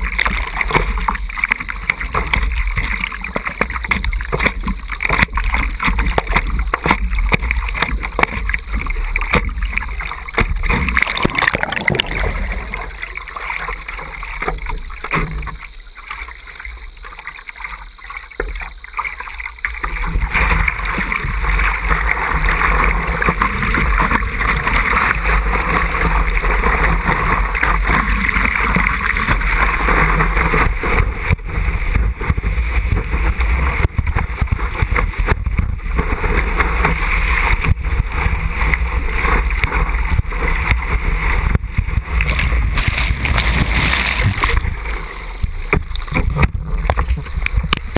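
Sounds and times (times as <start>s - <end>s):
water splashing against surfboard: 0.0s - 47.9s
rush of whitewater: 19.8s - 47.9s.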